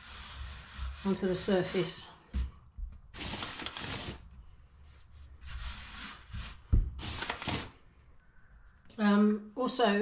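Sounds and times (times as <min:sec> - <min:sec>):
hands scuffing dough on worktop: 0:04.8 - 0:07.6.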